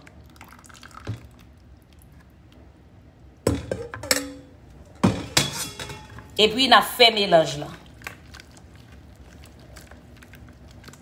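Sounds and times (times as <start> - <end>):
bowls and spatula clinking: 3.5 - 6.4.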